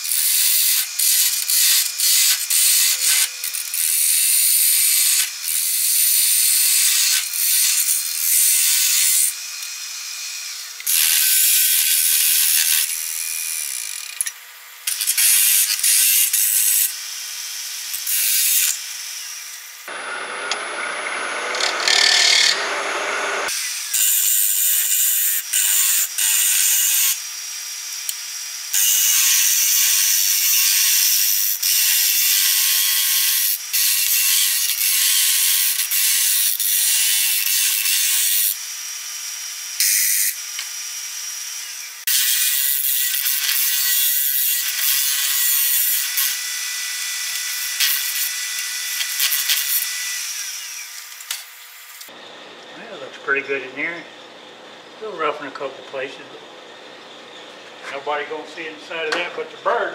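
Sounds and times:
wood lathe turning: 19.4 - 27.0
hollowing tool scraping wood: 21.2 - 24.3.

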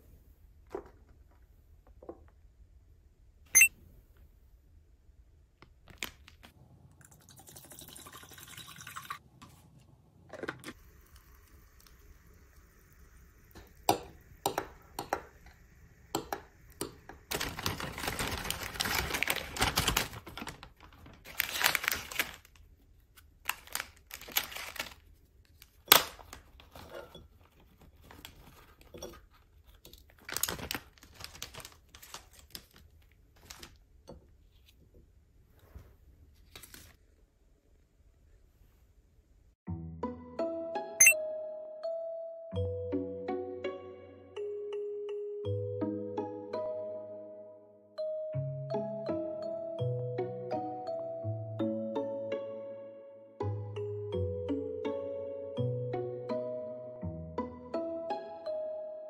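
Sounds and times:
plastic and paper bag rustling: 17.2 - 33.9.

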